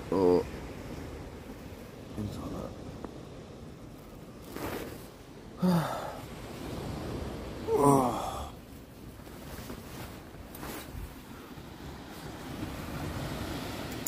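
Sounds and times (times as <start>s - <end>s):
man yawning: 5.6s - 6.2s, 7.7s - 8.6s
man grunting: 7.7s - 8.5s.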